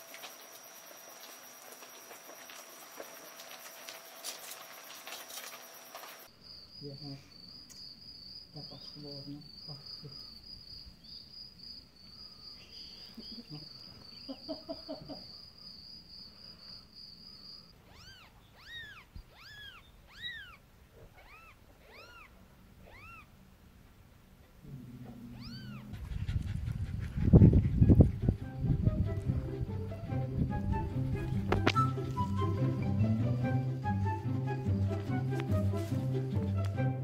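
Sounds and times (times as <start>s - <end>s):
crickets chirping: 0.0s - 23.4s, 24.9s - 36.3s
kitten mewing: 17.8s - 23.4s, 24.7s - 26.2s.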